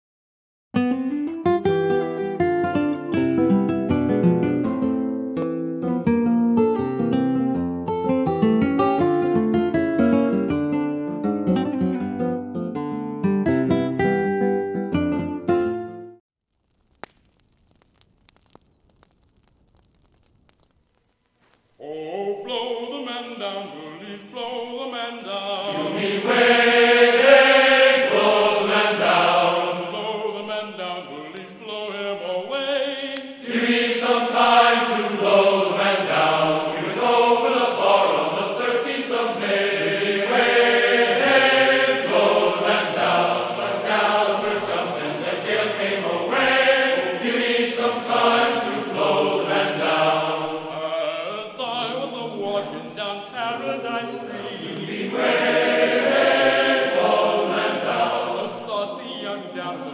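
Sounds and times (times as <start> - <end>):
voices singing slow song: 21.8 - 59.9.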